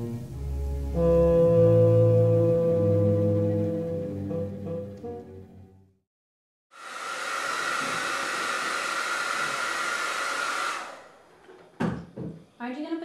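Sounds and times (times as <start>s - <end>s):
hair dryer running: 6.7s - 11.3s.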